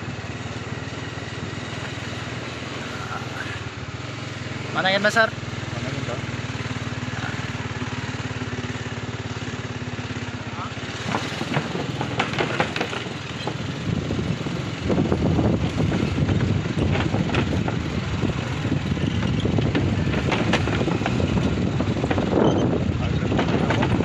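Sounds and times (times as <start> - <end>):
motorcycle engine running: 0.0 - 24.0
knocks and clatter of wooden boards: 10.9 - 14.6, 15.7 - 24.0.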